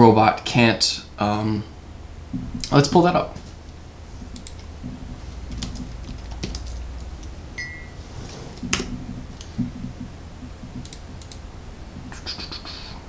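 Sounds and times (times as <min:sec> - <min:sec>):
low hum: 0:00.0 - 0:13.0
keyboard typing: 0:04.2 - 0:08.0, 0:08.6 - 0:11.4.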